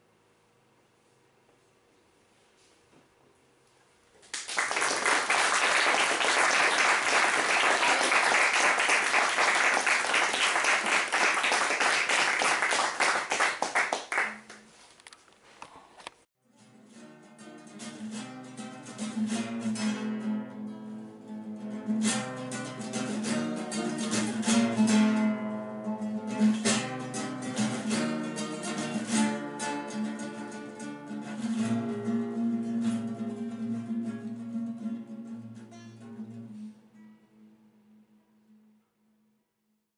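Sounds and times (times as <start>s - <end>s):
acoustic guitar plucking: 16.5s - 38.6s.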